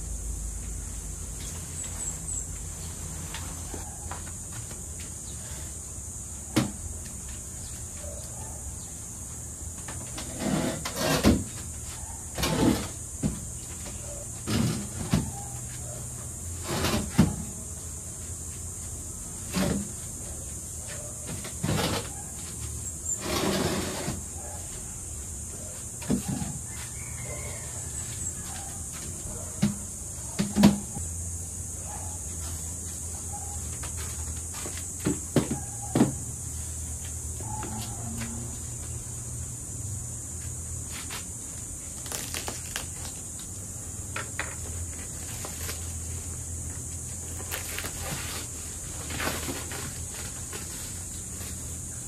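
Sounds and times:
background hiss and hum: 0.0 - 52.0
scraping rustles: 18.1 - 24.9, 44.6 - 52.0.

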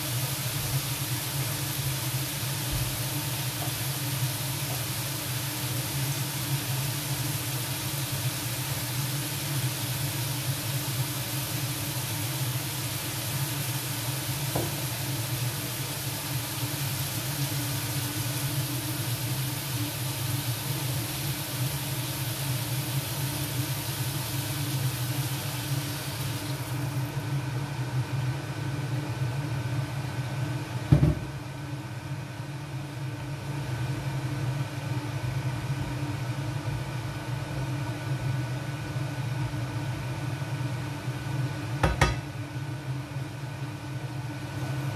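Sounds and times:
food sizzling in a skillet: 0.0 - 27.3
sharp knock: 41.8 - 42.2.

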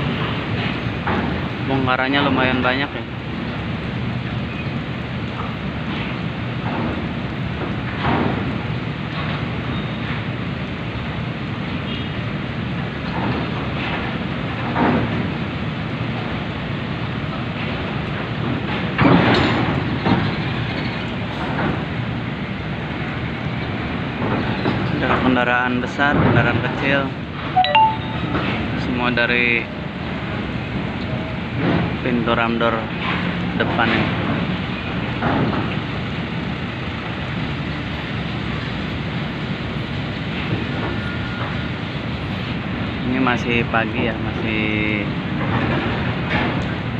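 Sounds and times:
trucks and cars driving: 0.0 - 46.9
metallic clatter of ramp: 18.5 - 21.9.

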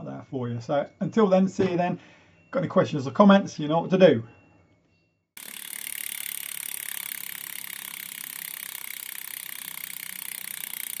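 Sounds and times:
bicycle freewheel hub ticking: 5.4 - 11.0.

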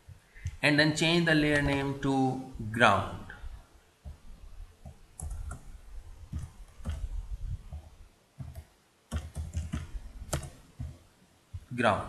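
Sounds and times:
computer keyboard keystrokes: 5.2 - 5.6, 6.4 - 7.1, 8.4 - 10.6.

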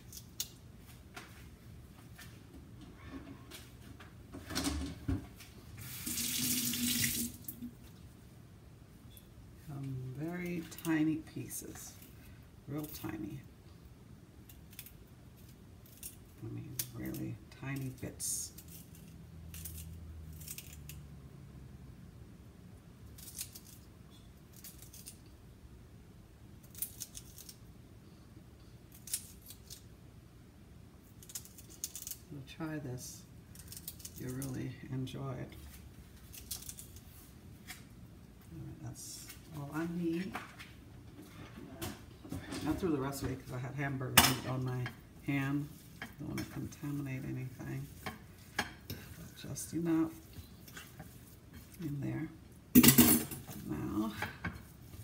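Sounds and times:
faint low hum: 0.0 - 55.0
tap water running into sink: 5.9 - 7.6.

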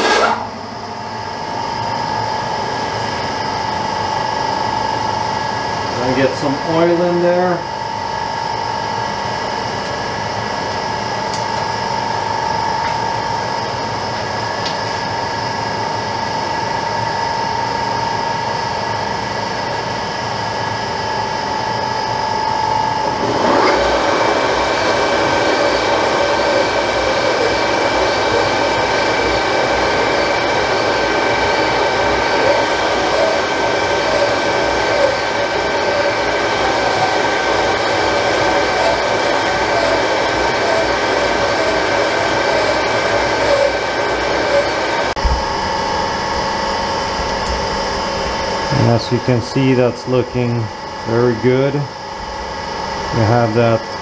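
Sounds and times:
lathe gear whine: 0.0 - 54.0
honing tool grinding and scraping: 23.1 - 45.1.

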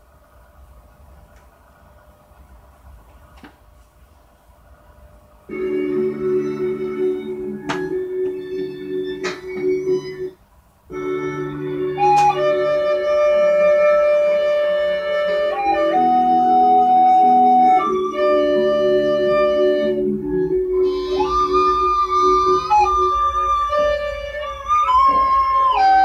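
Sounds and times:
layered instrumental held notes: 5.4 - 26.0.

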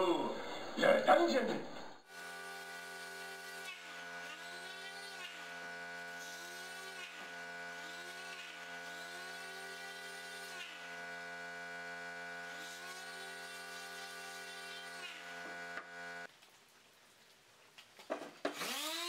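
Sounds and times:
electric sander buzzing on metal: 2.1 - 16.3, 18.5 - 19.0.

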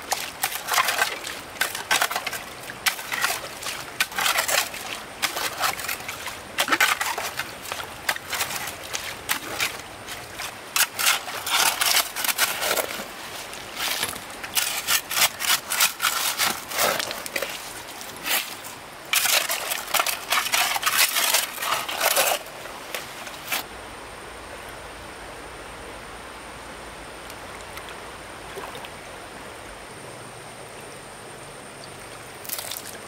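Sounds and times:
crackling rustling handling noise: 0.0 - 23.7.

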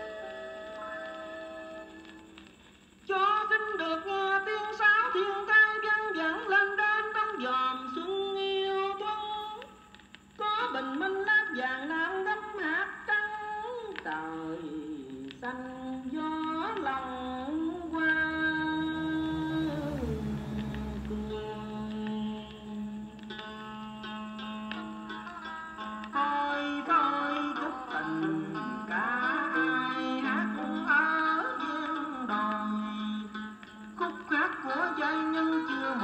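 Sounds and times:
person singing: 10.4 - 23.6, 26.1 - 36.0
instrumental backing: 17.1 - 26.4.

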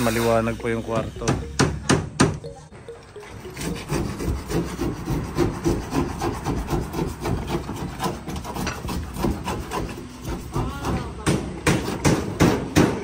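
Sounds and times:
handsaw cutting wood: 3.5 - 12.8.

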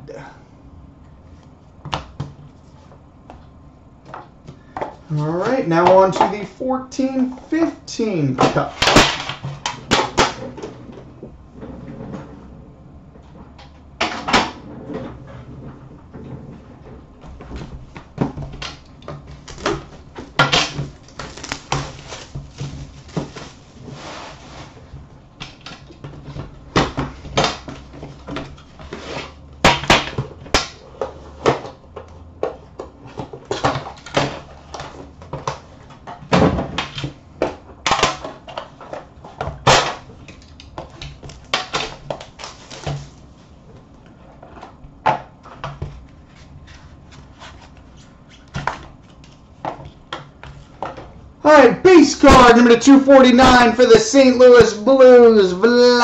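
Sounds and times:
cardboard and wrapping rustling: 19.2 - 25.1, 41.2 - 43.8, 45.9 - 50.9.

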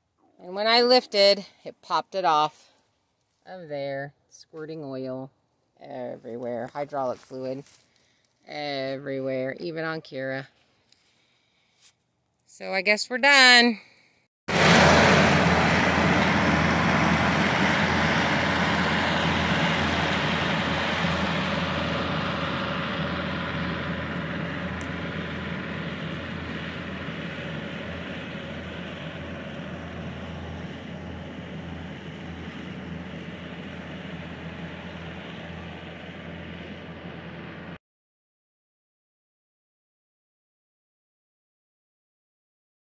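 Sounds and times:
track loader diesel engine: 14.5 - 37.8.

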